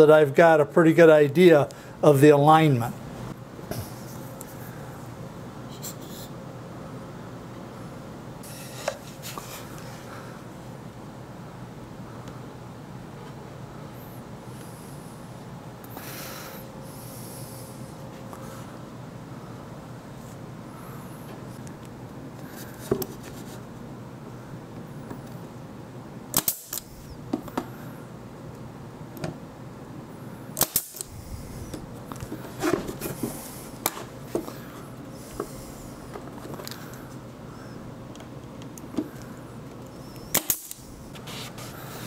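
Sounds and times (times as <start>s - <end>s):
nail gun shots: 26.3s - 26.8s, 30.6s - 31.1s, 40.3s - 40.8s.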